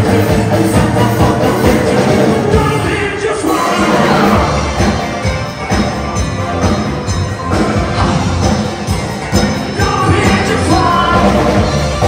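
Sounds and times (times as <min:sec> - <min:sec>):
person singing: 0:00.0 - 0:04.8, 0:09.6 - 0:12.0
drum kit beat: 0:00.0 - 0:12.0.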